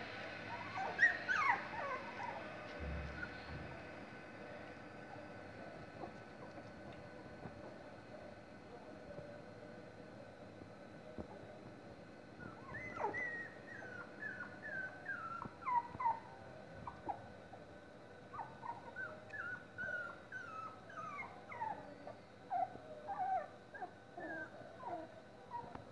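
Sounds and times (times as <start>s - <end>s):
puppies whimpering and squeaking: 0.5s - 3.5s, 12.4s - 17.3s, 18.4s - 25.8s.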